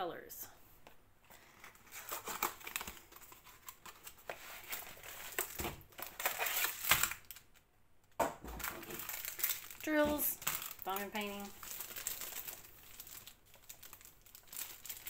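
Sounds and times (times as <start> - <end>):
plastic crinkling: 1.3 - 15.0.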